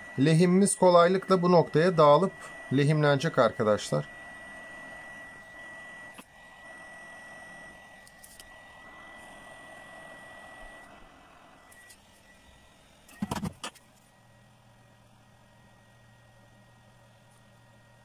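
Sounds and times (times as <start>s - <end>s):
hot air gun hissing: 0.0s - 6.8s
thin high whine: 0.0s - 18.0s.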